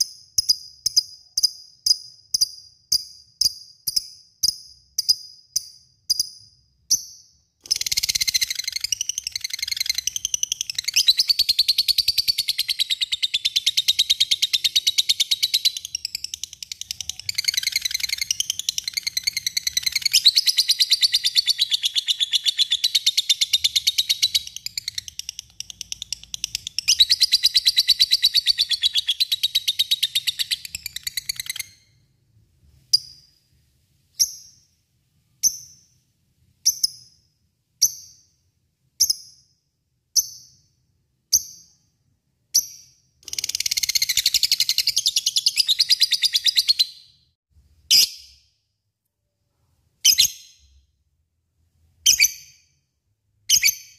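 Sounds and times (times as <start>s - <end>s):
lovebird chirping and trilling: 0.0s - 32.1s, 32.8s - 33.4s, 34.2s - 34.7s, 35.4s - 36.0s, 36.6s - 37.2s, 42.5s - 47.3s, 47.9s - 48.4s, 50.0s - 50.8s, 52.0s - 52.7s, 53.5s - 53.9s.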